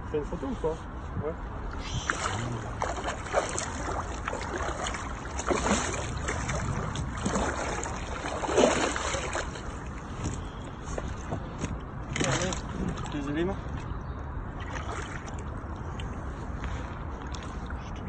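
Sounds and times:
fish thrashing water splashing: 0:01.8 - 0:10.0.

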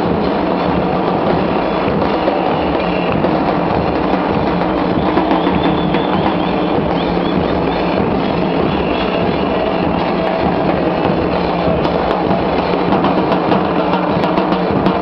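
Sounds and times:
bass drums playing dance rhythm: 0:00.0 - 0:15.0.

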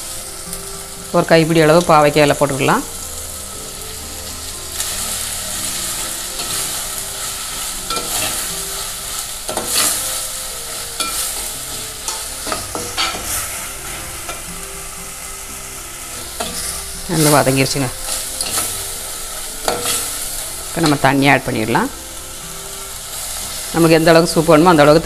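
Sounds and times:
leaves sizzling in oil: 0:00.0 - 0:25.0
metal spoon scraping a pot: 0:11.0 - 0:13.5.

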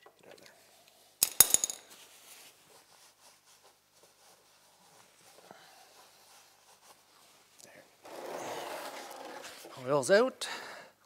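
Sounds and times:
rag rubbing: 0:08.0 - 0:09.8.

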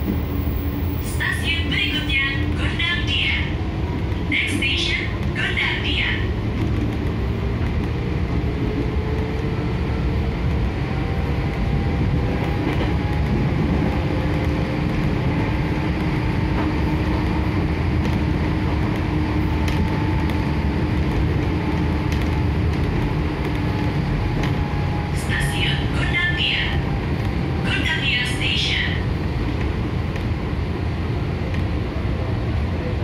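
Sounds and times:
train wheels rumbling on rails: 0:00.0 - 0:33.0.

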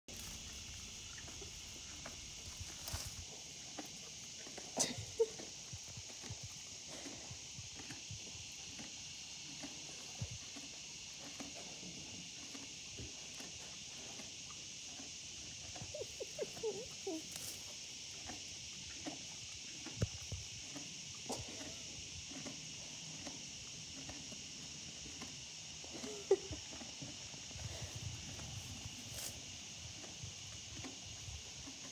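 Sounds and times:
horse chewing hay: 0:00.1 - 0:04.8, 0:05.4 - 0:15.8, 0:17.2 - 0:31.9
insects trilling: 0:00.1 - 0:31.9.

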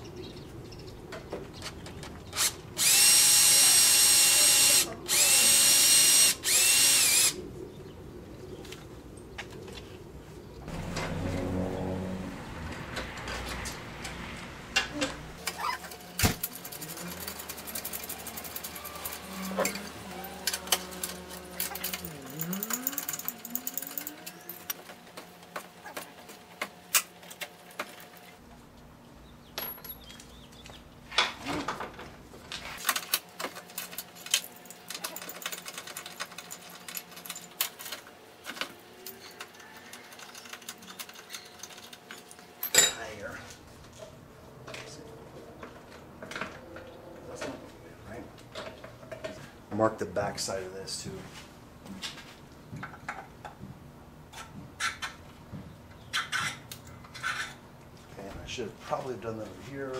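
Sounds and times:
small power tool motor: 0:02.4 - 0:07.4
metal clicks and clinks: 0:15.9 - 0:24.8.

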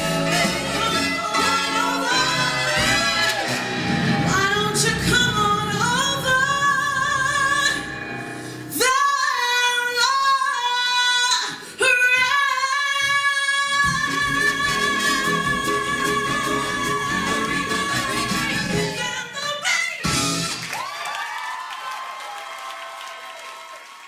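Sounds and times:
band accompaniment: 0:00.0 - 0:09.0, 0:13.8 - 0:20.7.

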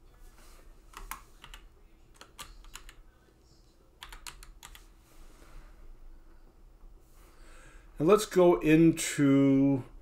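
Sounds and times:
keyboard typing: 0:00.9 - 0:03.0, 0:04.0 - 0:04.9.

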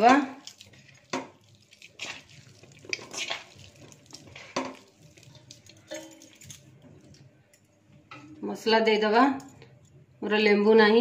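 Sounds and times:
potatoes squishing: 0:00.0 - 0:07.1
clinks against metal bowl: 0:05.9 - 0:06.6.

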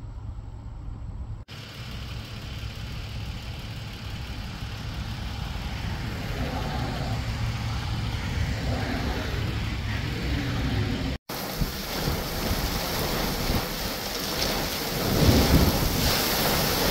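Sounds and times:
car approaching on road: 0:00.0 - 0:11.2
low rumble: 0:00.0 - 0:16.9.

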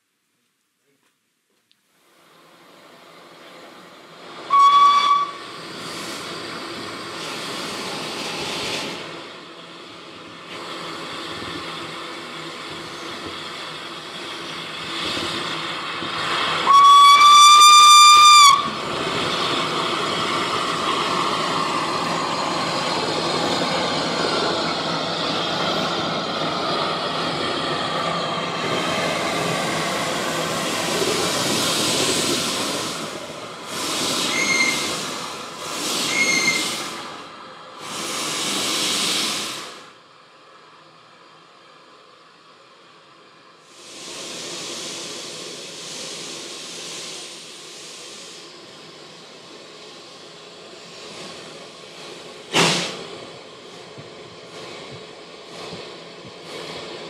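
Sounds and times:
steam hissing: 0:02.1 - 0:40.0, 0:43.5 - 0:57.0
steam blowing from drain cocks: 0:04.4 - 0:09.2, 0:10.4 - 0:24.8, 0:28.7 - 0:39.9, 0:43.6 - 0:57.0
steam whistle blast: 0:04.5 - 0:05.5, 0:16.6 - 0:18.8, 0:34.3 - 0:34.9.

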